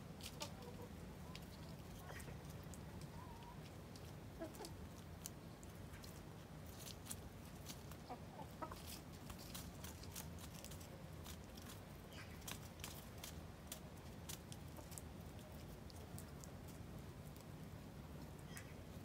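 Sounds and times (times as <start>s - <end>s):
hens pecking at food: 0.0s - 19.0s
hens clucking softly: 0.2s - 6.2s, 7.6s - 9.1s.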